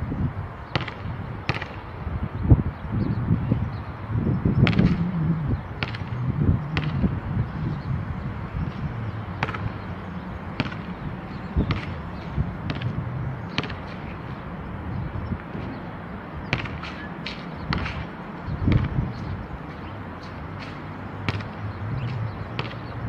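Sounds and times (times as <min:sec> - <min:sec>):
steady low rumble: 0:02.3 - 0:16.6.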